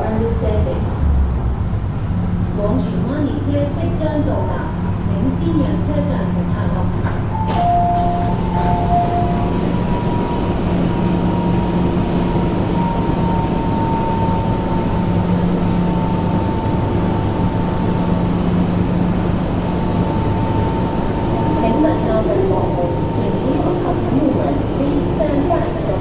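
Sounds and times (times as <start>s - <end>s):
train equipment humming: 2.6s - 26.0s
faint high whine: 7.3s - 26.0s
door beeps: 7.4s - 11.7s.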